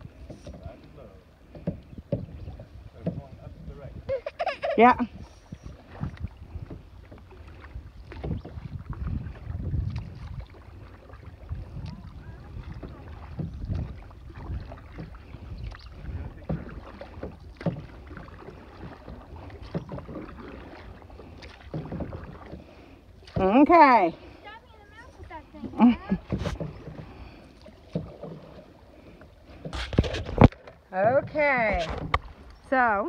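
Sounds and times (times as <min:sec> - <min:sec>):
paddle knocks: 0:00.0 - 0:04.1, 0:05.6 - 0:24.0, 0:24.8 - 0:33.0
wind rumble on microphone: 0:00.0 - 0:22.5, 0:29.6 - 0:33.0
paddle splashing through water: 0:00.0 - 0:33.0.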